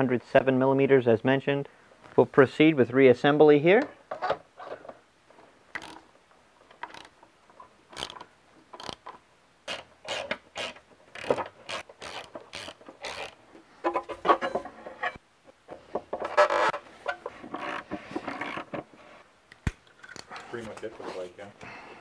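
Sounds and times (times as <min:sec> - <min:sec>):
socket ratchet clicking: 0:05.8 - 0:06.0, 0:06.8 - 0:07.2, 0:07.9 - 0:09.1, 0:09.7 - 0:13.4.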